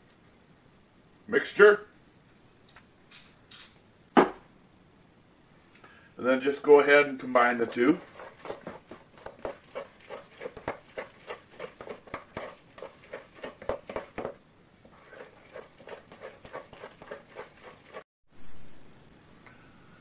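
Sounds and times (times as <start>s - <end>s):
utensil stirring in metal bowl: 7.2s - 18.1s.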